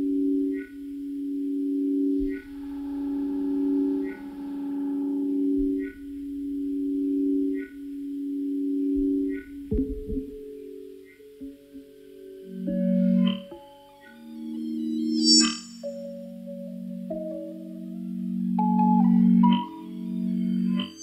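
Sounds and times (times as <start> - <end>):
buzzy synth tone: 0.0 - 13.5
low sine tones: 0.0 - 21.0.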